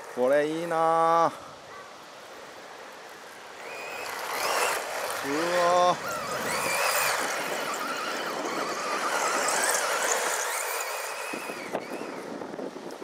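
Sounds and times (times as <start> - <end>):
tyres hissing on gravel: 2.1 - 12.0
electric motor and gears whining: 3.5 - 13.0.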